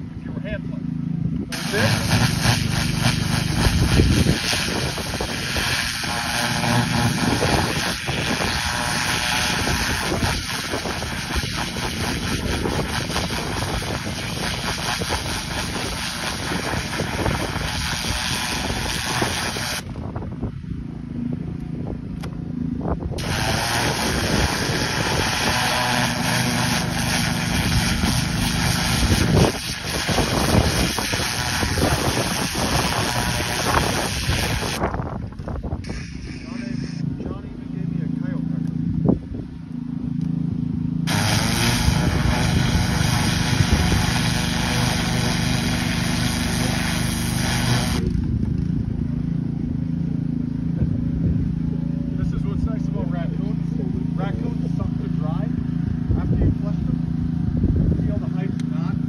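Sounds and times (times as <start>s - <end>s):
pressure washer jet hissing: 1.5s - 19.9s, 23.2s - 34.8s, 35.8s - 37.0s, 41.1s - 48.1s.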